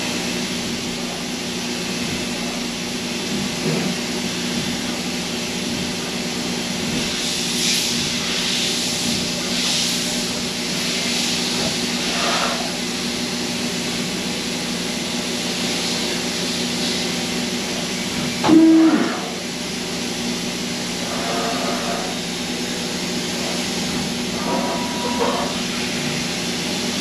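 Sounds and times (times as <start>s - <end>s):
machine hum and hiss: 0.0s - 27.0s
machine whine: 16.0s - 27.0s.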